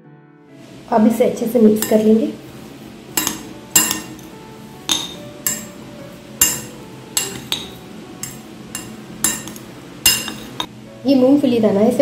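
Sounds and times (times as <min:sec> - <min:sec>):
metal spoon clinking in bowl: 0:01.8 - 0:02.1, 0:03.2 - 0:04.3, 0:04.9 - 0:05.8, 0:06.4 - 0:10.7.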